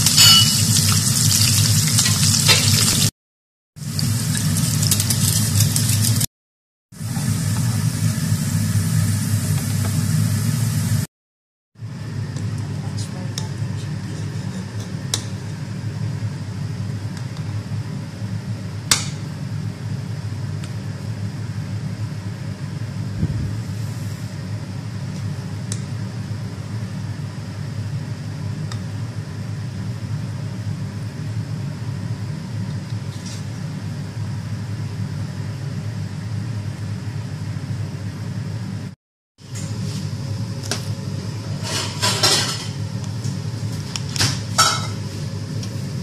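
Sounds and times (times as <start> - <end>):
fan humming: 6.9 - 11.1, 11.8 - 46.0.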